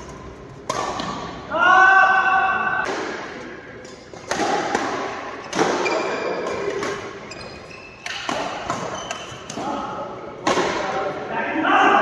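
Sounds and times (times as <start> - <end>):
badminton shuttlecock hits echoing: 0.0 - 1.5, 2.7 - 7.3, 7.9 - 11.0.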